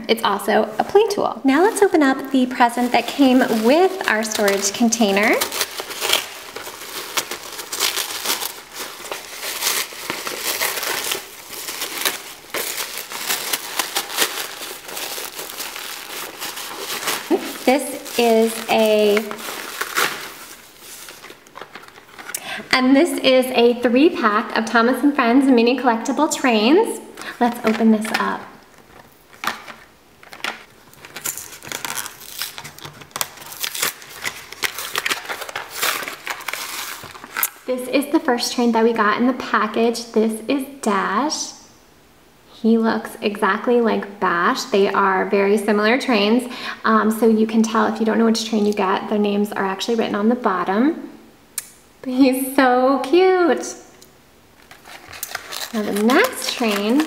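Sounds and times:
tissue paper crumpling and tearing: 1.5 - 22.3, 30.9 - 37.6, 54.6 - 57.0
plastic packaging crackling: 1.5 - 22.5, 27.2 - 37.7, 54.6 - 57.0.

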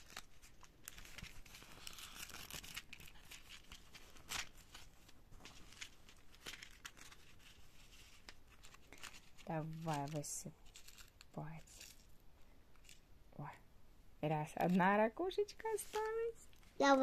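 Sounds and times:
plastic packet crinkling: 0.0 - 12.2.

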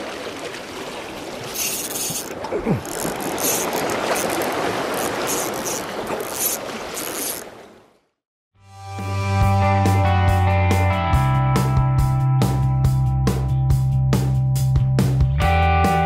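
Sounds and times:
waves washing against rocks: 0.0 - 7.8
fishing reel clicking and whirring: 1.5 - 7.4.

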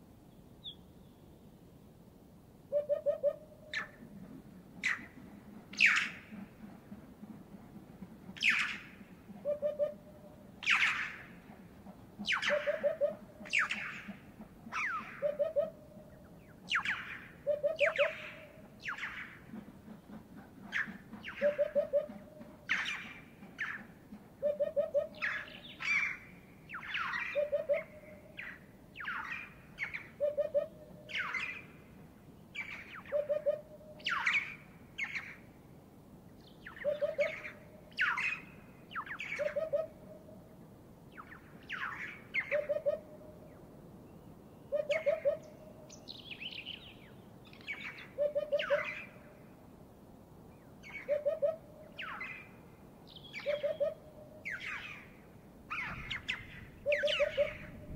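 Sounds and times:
sharp bird calls: 12.2 - 19.5, 36.6 - 40.2, 44.6 - 49.3, 50.8 - 57.9.

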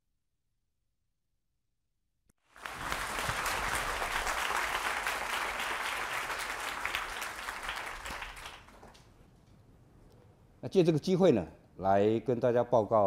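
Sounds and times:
audience applauding: 2.4 - 9.0.

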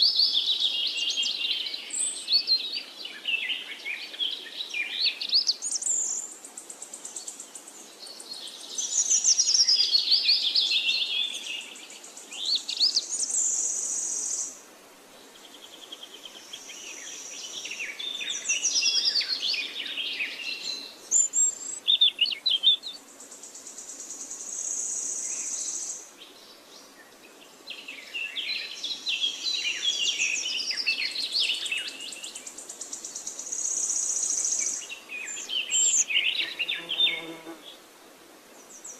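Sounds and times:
small birds chirping: 0.0 - 14.6, 15.2 - 37.8
high insect buzz: 36.4 - 37.8.

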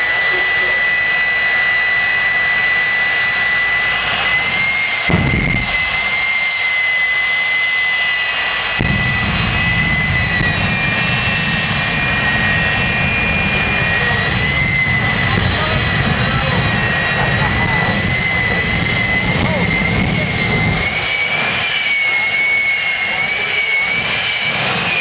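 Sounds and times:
afterburner deep rumble: 0.0 - 25.0
jet engine whine: 0.0 - 25.0
sharp bang: 5.0 - 6.4, 8.7 - 12.6.

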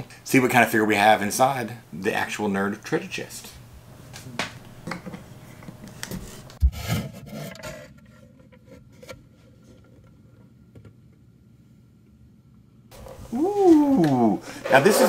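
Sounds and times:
wood rubbing and scraping: 12.9 - 15.0.

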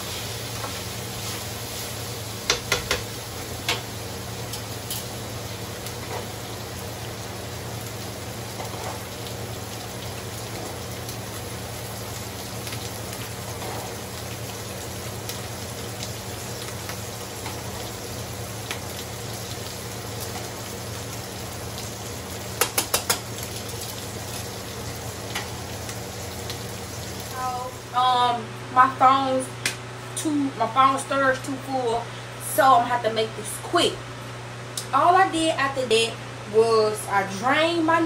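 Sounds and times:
meat sizzling in a skillet: 0.0 - 27.9.

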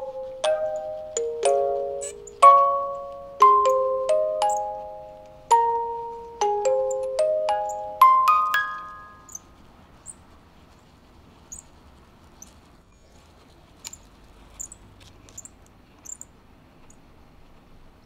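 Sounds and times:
music box notes: 0.0 - 9.4.

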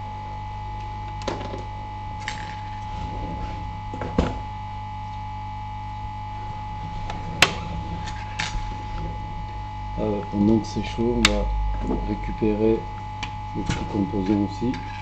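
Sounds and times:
steady electrical hum: 0.0 - 15.0.

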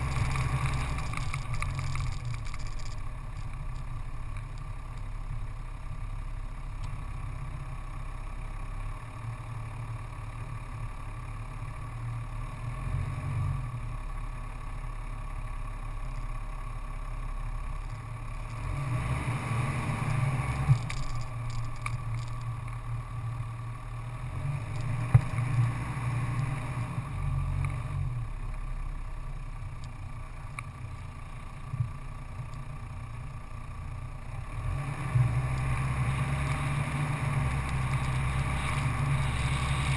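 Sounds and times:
tyre noise: 0.0 - 3.9, 35.4 - 39.9
vehicle engine drone: 0.0 - 39.9.

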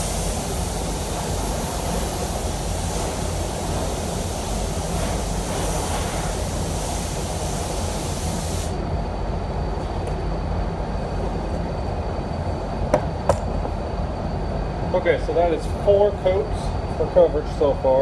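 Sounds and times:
compressed air hissing from spray gun: 0.0 - 8.9
ventilation fans rumbling: 0.0 - 18.0.

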